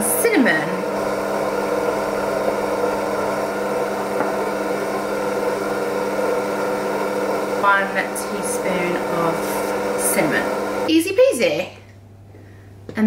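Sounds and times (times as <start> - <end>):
stand mixer motor humming: 0.0 - 10.9.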